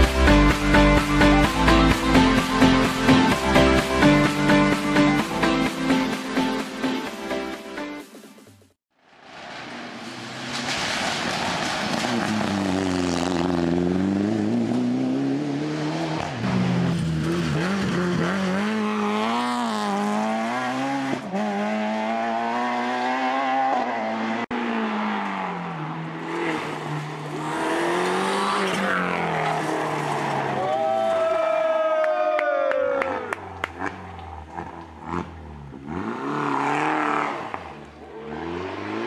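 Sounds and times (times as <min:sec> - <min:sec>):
rally car engines revving: 0:09.6 - 0:31.3, 0:32.8 - 0:39.0.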